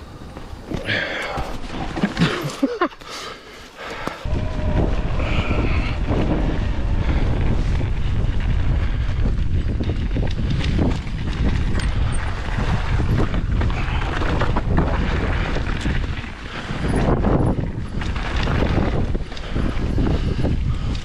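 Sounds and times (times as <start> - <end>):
bike rattling over rough ground: 0.0 - 21.0
wind buffeting microphone: 4.2 - 21.0.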